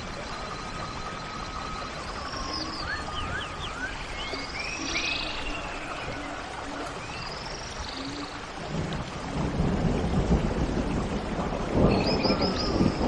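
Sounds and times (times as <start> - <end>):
low rumble like thunder: 0.0 - 13.0
birds chirping and trilling: 0.1 - 8.5, 11.8 - 13.0.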